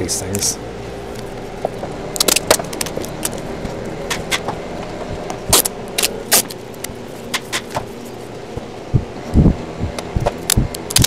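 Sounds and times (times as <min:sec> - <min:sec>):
tape ripping off roll: 0:05.5 - 0:06.6.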